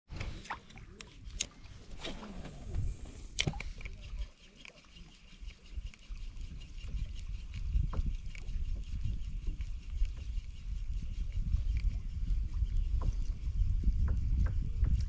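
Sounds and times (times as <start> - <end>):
wind buffeting microphone: 1.2 - 4.3, 5.8 - 15.0
fishing reel clicks: 3.2 - 9.1.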